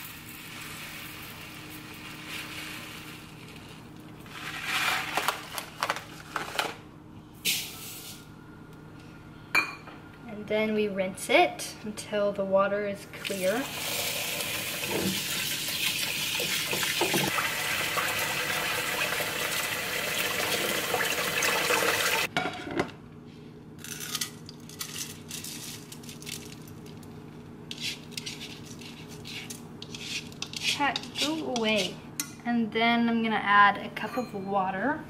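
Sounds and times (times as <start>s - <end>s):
faucet running into bowl: 13.2s - 22.3s.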